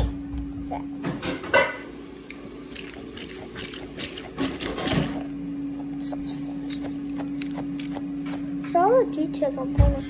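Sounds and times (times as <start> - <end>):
squishy toy squishing and crackling: 2.3 - 8.6.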